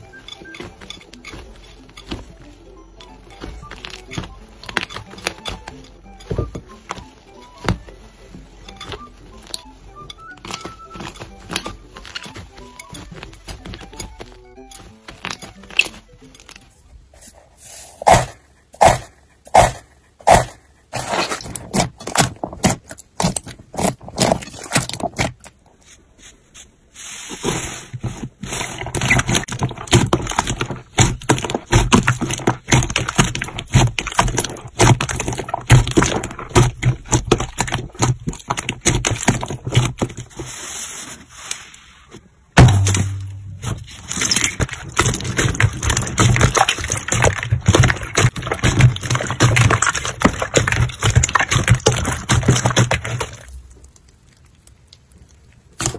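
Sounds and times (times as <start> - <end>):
slime squelching and popping: 28.5 - 40.4, 42.6 - 55.9.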